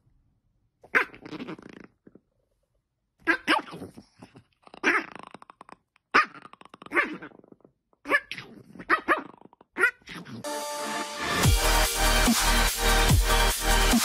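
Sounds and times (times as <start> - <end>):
dog barking and growling: 0.8 - 2.2, 3.2 - 10.5
loud electronic dance music: 10.4 - 14.0.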